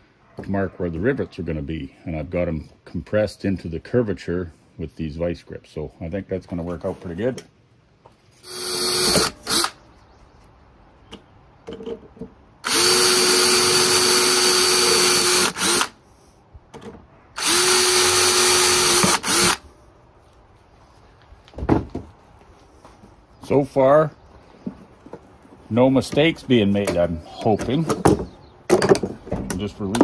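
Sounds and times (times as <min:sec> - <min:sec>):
cordless drill boring: 0:08.4 - 0:09.8, 0:12.6 - 0:16.0, 0:17.4 - 0:19.6.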